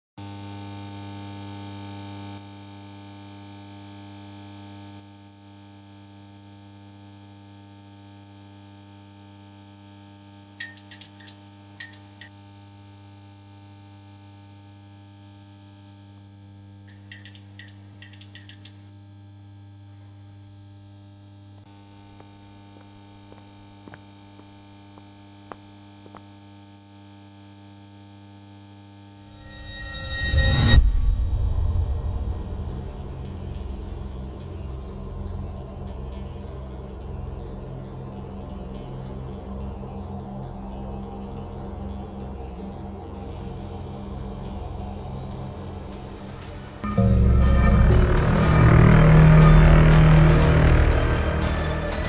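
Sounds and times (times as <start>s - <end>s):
electrical mains hum: 10.4s - 27.5s.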